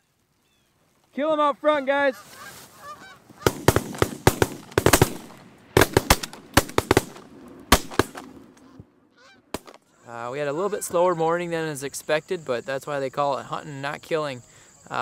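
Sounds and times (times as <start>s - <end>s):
geese honking: 1.4s - 4.6s, 8.0s - 11.9s
shotgun blasts: 3.4s - 8.6s, 9.5s - 9.8s.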